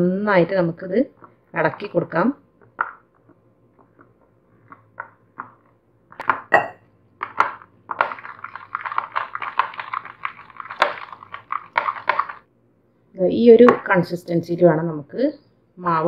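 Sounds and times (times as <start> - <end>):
hand mixing thick batter: 0.4 - 12.5.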